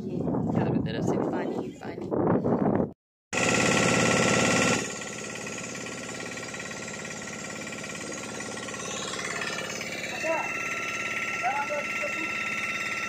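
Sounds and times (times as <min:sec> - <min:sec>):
motorboat engine chugging: 0:03.4 - 0:13.0.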